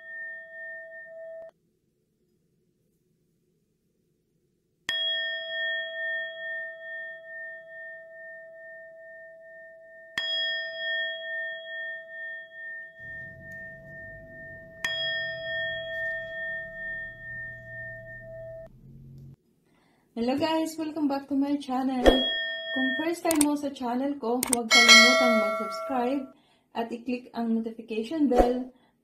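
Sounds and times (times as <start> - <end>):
low hum: 13.0 - 19.4
metal bell ringing: 22.2 - 23.4, 24.5 - 26.3.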